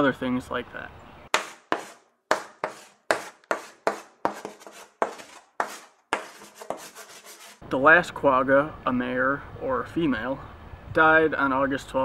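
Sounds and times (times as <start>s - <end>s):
chalk scratching on a chalkboard: 1.3s - 7.6s.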